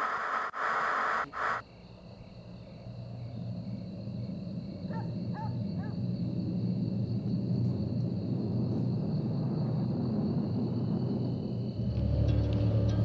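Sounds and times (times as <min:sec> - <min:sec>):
tv static hiss: 0:00.0 - 0:01.6
low steady rumble: 0:02.5 - 0:13.0.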